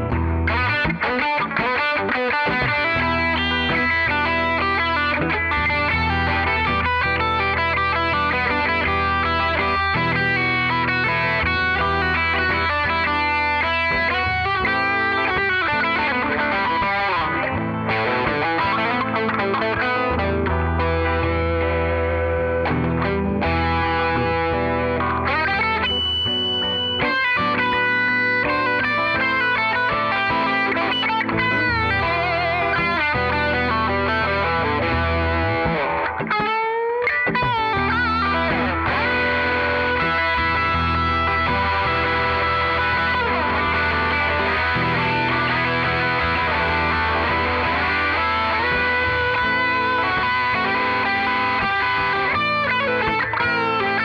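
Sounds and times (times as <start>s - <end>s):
electric guitar through amp: 0.0s - 54.0s
held low bass: 2.6s - 27.0s, 37.4s - 53.8s.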